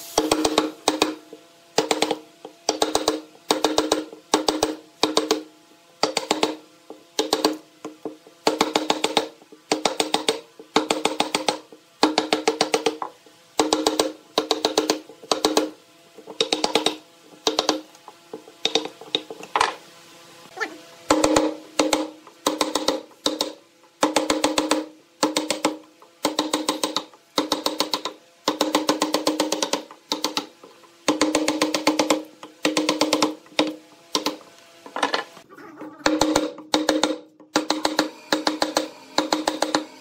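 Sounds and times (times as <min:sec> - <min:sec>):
mallet striking chisel into wood: 0:00.2 - 0:01.2, 0:01.8 - 0:06.6, 0:07.2 - 0:19.3, 0:21.1 - 0:34.4, 0:36.0 - 0:39.8.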